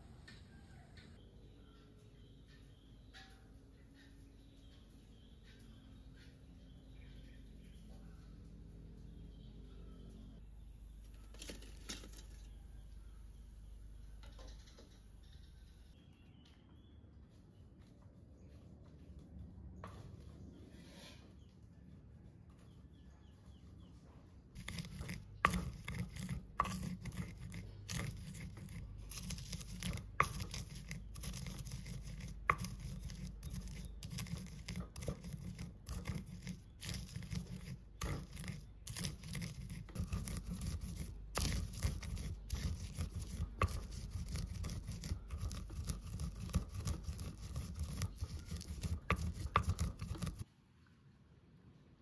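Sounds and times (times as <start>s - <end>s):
pestle knocking mortar: 24.6s - 50.4s
stone pestle grinding nuts: 24.6s - 50.5s.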